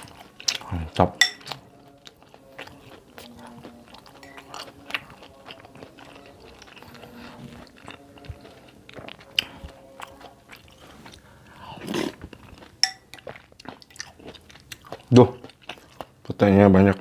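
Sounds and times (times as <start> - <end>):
chewing: 0.0 - 17.0
metal spoon clinking in glass bowl: 1.2 - 1.6, 4.2 - 4.5, 12.8 - 13.2.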